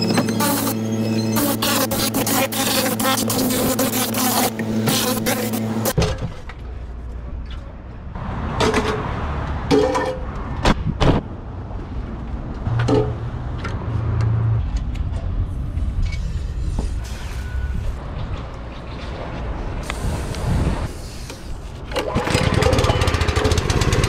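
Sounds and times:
compressed air blowing: 1.4 - 6.0, 19.8 - 21.8.

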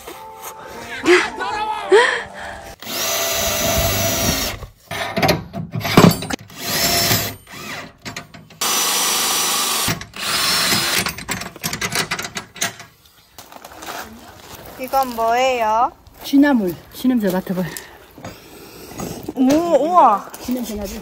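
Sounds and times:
cordless drill whining: 2.8 - 4.6, 6.5 - 7.9, 8.6 - 11.1.

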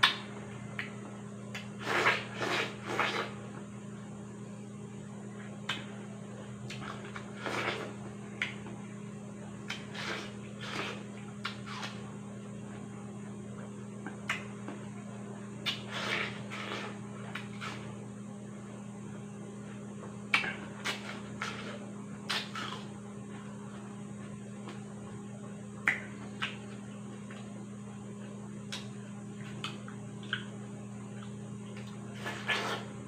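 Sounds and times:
person chewing watermelon: 6.6 - 8.7, 9.6 - 12.1, 15.6 - 17.9, 20.4 - 24.8, 28.2 - 33.0.

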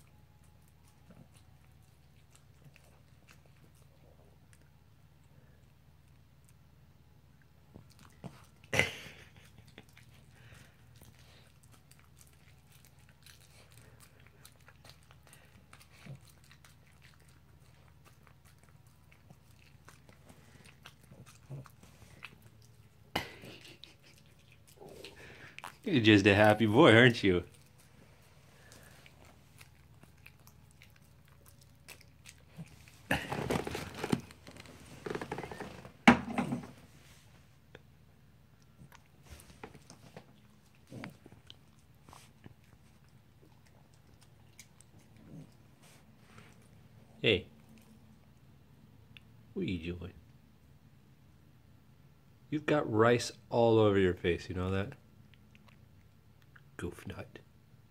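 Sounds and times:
dog chewing and licking: 0.0 - 4.8, 7.4 - 36.7, 38.6 - 47.0, 55.2 - 56.7
paper plate crinkling: 32.8 - 36.0.

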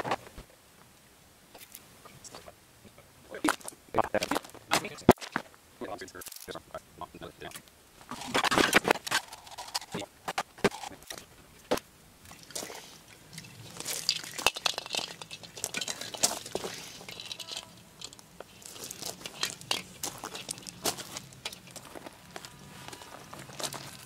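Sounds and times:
plastic packaging crinkling: 13.4 - 24.0.

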